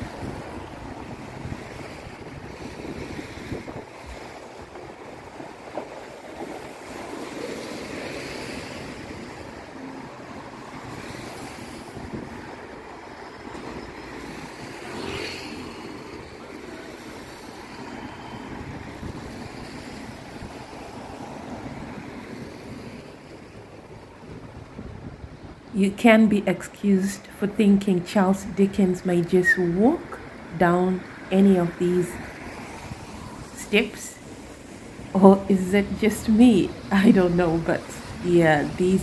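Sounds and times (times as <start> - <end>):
vehicles passing on wet road: 0.0 - 25.7, 28.7 - 39.0
wind on microphone: 0.0 - 25.8.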